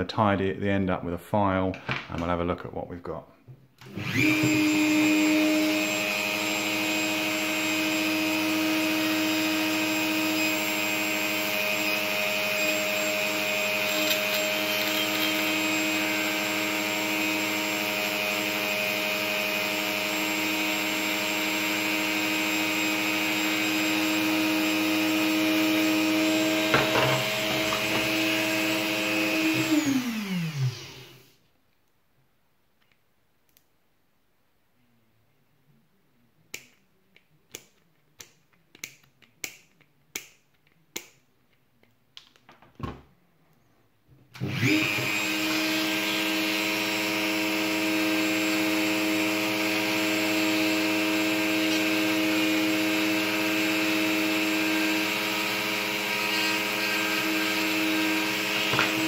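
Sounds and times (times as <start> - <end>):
rotary tool motor whine: 3.8 - 18.4, 20.2 - 31.3, 44.4 - 59.0.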